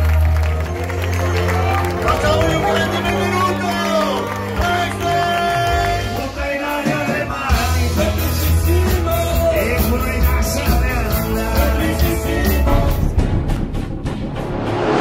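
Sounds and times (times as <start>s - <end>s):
rock music with lead vocal: 4.5s - 13.4s
bass and drums: 4.6s - 15.0s.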